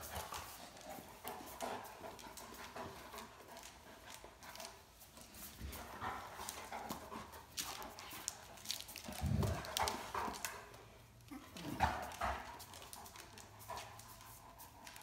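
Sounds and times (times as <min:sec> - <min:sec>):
dog claws clicking on tile: 0:00.0 - 0:15.0
low dog sounds: 0:11.2 - 0:14.3.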